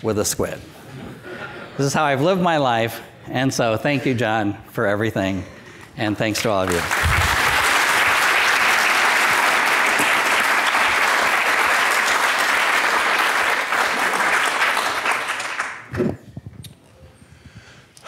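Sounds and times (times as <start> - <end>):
audience applauding: 6.6 - 15.9.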